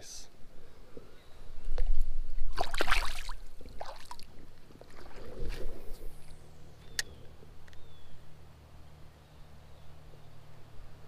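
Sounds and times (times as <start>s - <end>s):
creek water sloshing: 2.4s - 6.7s
fish splashing into water: 2.5s - 4.3s.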